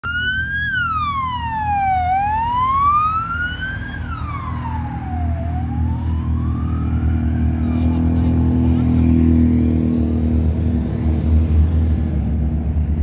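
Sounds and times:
police siren wailing: 0.0 - 10.3
vehicle engines running: 0.1 - 13.0.

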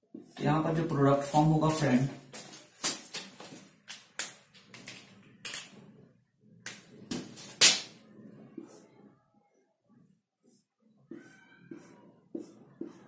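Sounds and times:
marker clicks and taps: 3.9 - 5.7.

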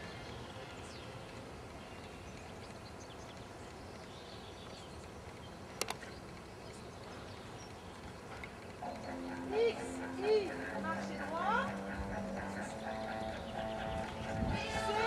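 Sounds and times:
sharp clicks: 5.8 - 6.5.

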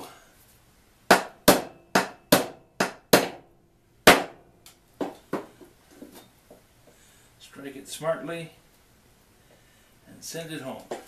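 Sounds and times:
hammer striking nail into wood: 1.1 - 4.4.

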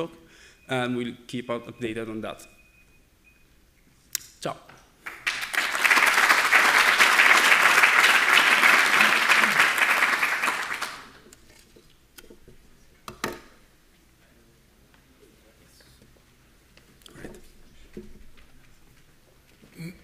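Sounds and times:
audience applauding: 5.0 - 11.2.

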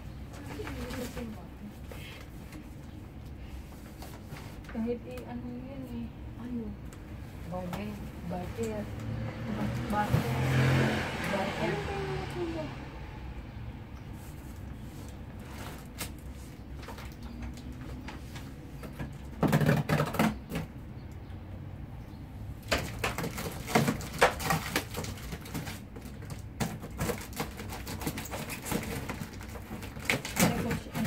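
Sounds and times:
household items rummaged through: 22.7 - 31.0.

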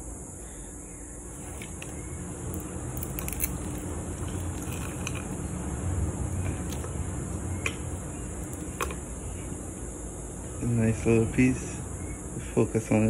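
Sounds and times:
fork scraping plate: 1.3 - 5.6, 6.4 - 7.0.

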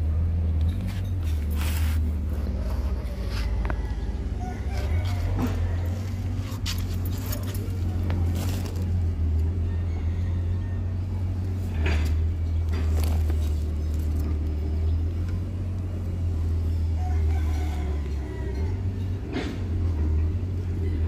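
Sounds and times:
low mechanical hum: 0.0 - 21.0
rooster crowing: 3.1 - 6.6, 9.2 - 11.6, 16.7 - 19.2.

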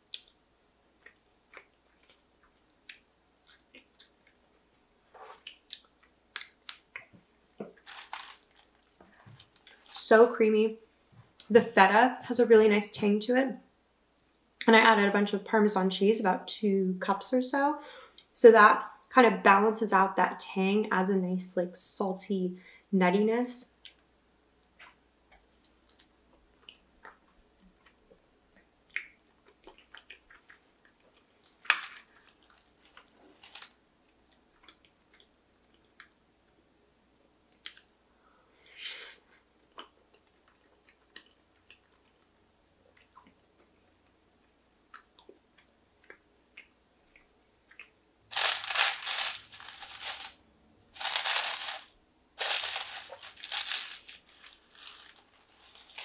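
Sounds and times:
soft chewing: 1.0 - 9.9, 24.8 - 36.6, 37.5 - 48.0.

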